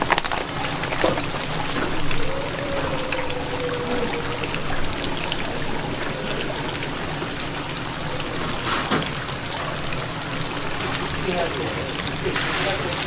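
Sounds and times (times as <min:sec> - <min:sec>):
oil sizzling in deep-fryer: 0:00.0 - 0:13.0.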